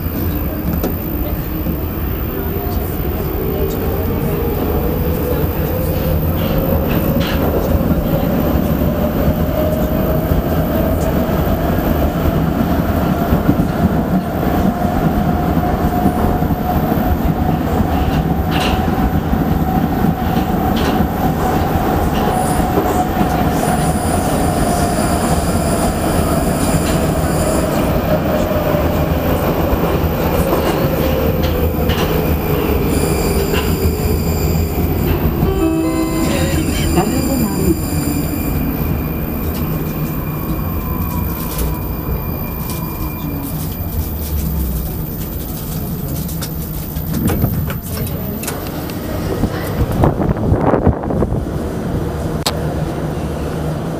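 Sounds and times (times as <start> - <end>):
wheels rumbling on rails: 0.0 - 53.9
train motor whine: 31.4 - 48.8.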